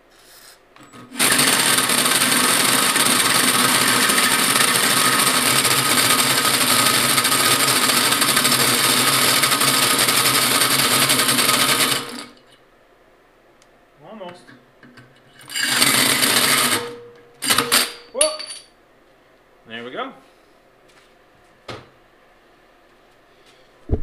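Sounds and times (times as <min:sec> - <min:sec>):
drill hole saw grinding through steel: 0:01.1 - 0:12.3, 0:15.4 - 0:17.6.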